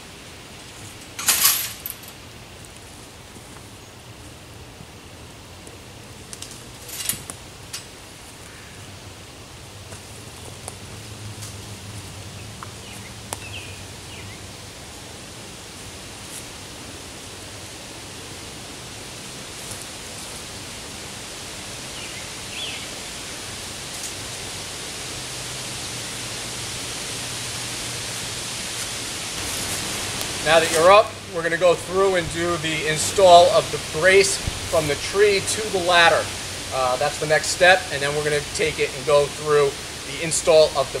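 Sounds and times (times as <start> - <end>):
outdoor background hiss: 0.0 - 41.0.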